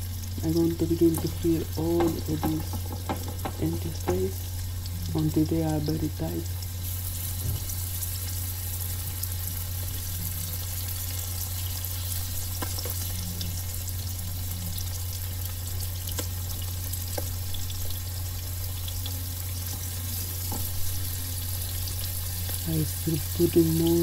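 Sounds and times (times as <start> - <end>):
roe sizzling in oil: 0.0 - 24.0.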